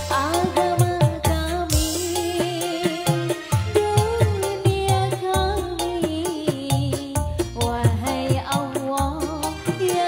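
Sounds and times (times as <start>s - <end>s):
keyboard: 0.0s - 10.0s
woman singing: 0.0s - 10.0s.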